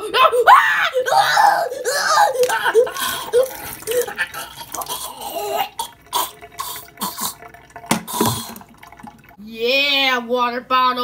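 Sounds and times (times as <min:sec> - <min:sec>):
water glugging from plastic bottle: 0:02.0 - 0:09.4
water splashing into metal sink: 0:02.2 - 0:09.4.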